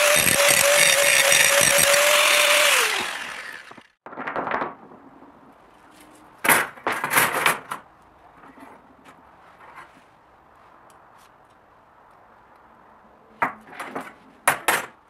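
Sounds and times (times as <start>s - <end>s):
angle grinder grinding steel: 0.0s - 3.9s
grinder winding down: 0.0s - 4.0s.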